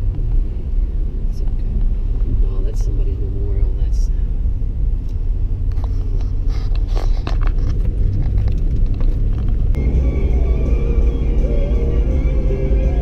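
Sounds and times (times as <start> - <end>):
road noise inside truck cabin: 0.0 - 13.0
music: 9.8 - 13.0.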